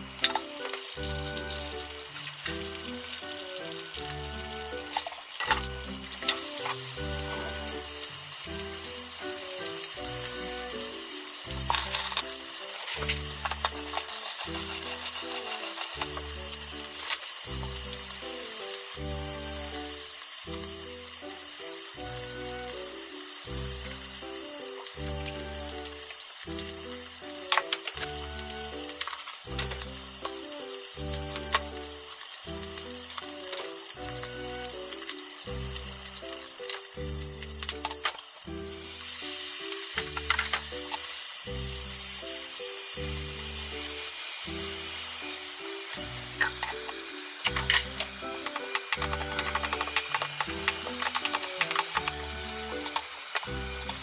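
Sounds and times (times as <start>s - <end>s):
hot oil sizzling: 0.0s - 54.0s
music with steady beat: 44.5s - 54.0s
utensil clicks: 46.4s - 54.0s.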